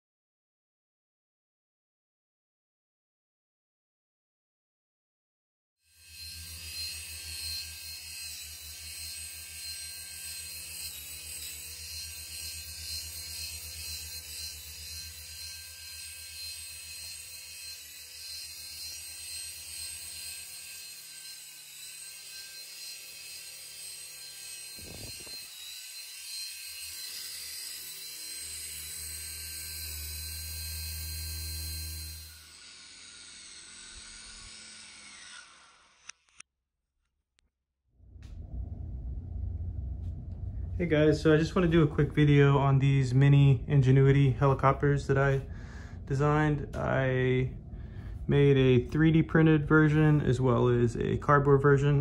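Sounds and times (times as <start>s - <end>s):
high-pitched motor whine: 5.9s - 36.3s, 38.1s - 52.0s
low rotor buzz: 24.8s - 25.5s, 38.0s - 51.4s.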